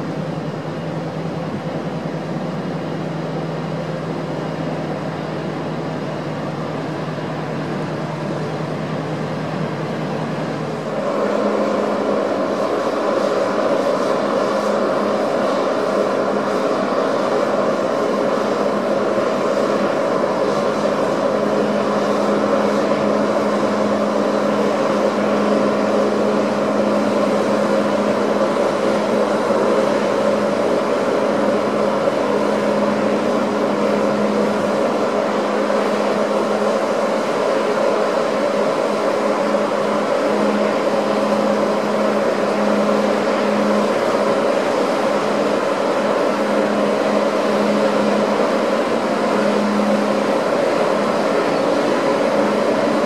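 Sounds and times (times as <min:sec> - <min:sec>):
constant rushing noise: 0:00.0 - 0:53.0
ship engine drone: 0:00.0 - 0:53.0.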